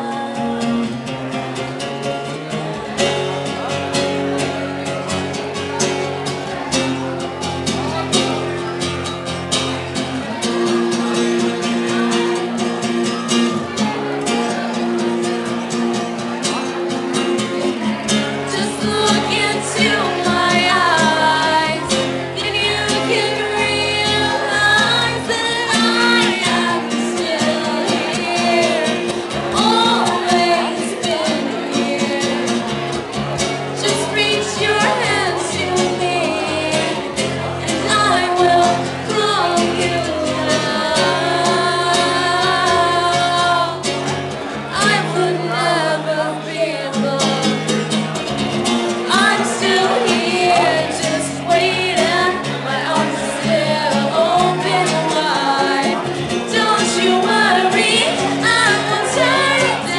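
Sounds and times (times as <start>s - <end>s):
woman singing: 0.0s - 1.0s, 18.3s - 32.7s, 33.8s - 44.0s, 44.6s - 47.8s, 49.1s - 59.9s
acoustic guitar strumming: 0.0s - 59.9s.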